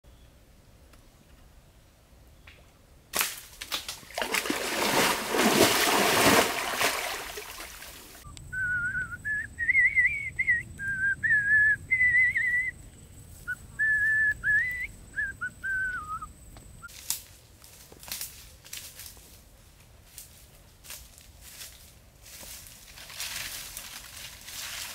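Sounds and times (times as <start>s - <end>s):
person whistling a tune: 8.5s - 12.7s, 13.5s - 16.3s.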